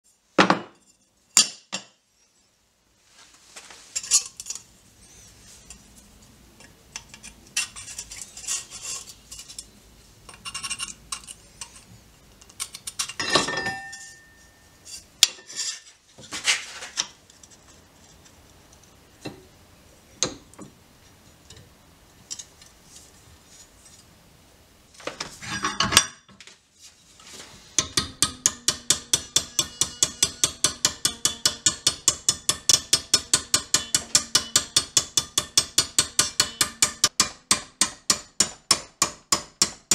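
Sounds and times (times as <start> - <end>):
tools clinking and scraping: 3.6 - 5.9, 6.6 - 19.4, 25.1 - 26.4, 27.2 - 33.0
hammer beating steel plate: 27.8 - 39.9.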